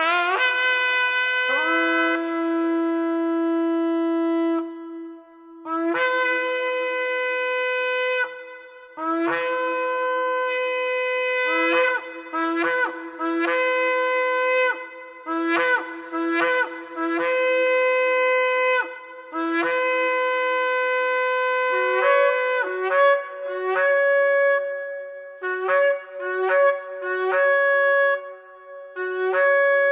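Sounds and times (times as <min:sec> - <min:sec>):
shofar blasts: 0:00.0 - 0:29.9.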